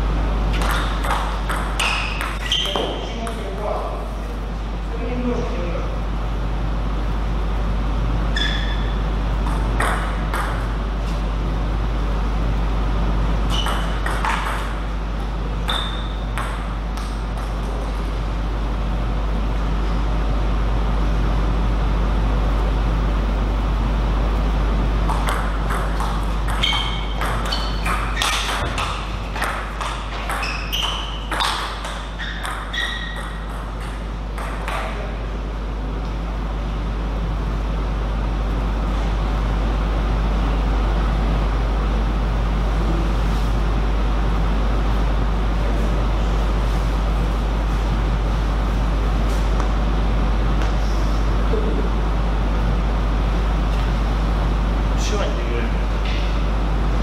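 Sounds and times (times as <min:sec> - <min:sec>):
steady low hum: 0:00.0 - 0:57.0
table tennis ball pinging: 0:00.5 - 0:03.6, 0:09.4 - 0:10.8, 0:13.5 - 0:14.9, 0:15.6 - 0:17.7, 0:25.0 - 0:35.0.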